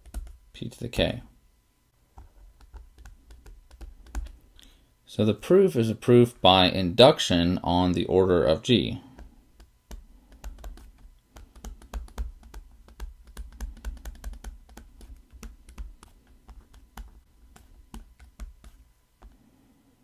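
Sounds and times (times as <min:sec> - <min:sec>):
stylus tapping on tablet screen: 0:00.0 - 0:00.4, 0:02.2 - 0:04.4, 0:09.1 - 0:19.4.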